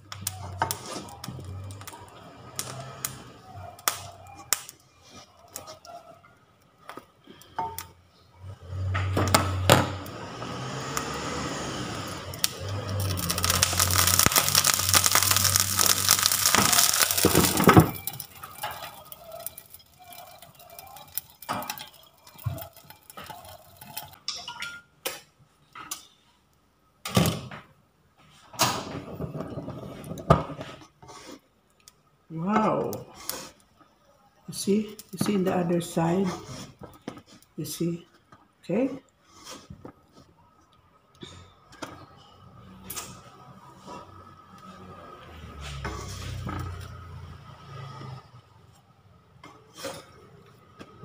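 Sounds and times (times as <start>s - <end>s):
water sizzling in hot frying pan: 9.4s - 24.3s.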